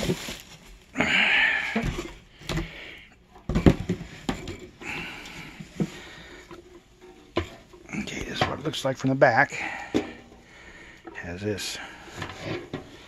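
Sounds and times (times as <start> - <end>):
cardboard scraping and rustling: 0.0 - 0.9.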